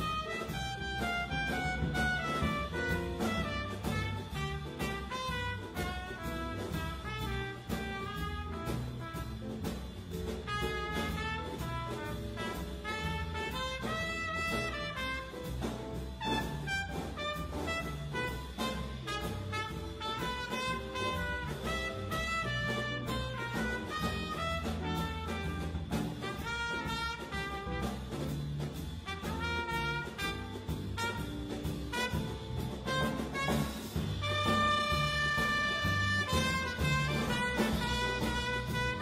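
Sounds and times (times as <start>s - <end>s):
drums: 0.0s - 39.0s
electric bass: 0.0s - 39.0s
jazz trumpet solo: 0.0s - 39.0s.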